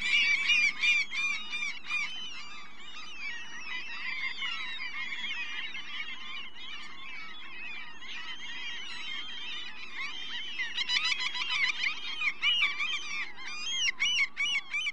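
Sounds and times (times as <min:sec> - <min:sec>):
chorus of chirping animal calls: 0:00.0 - 0:14.9.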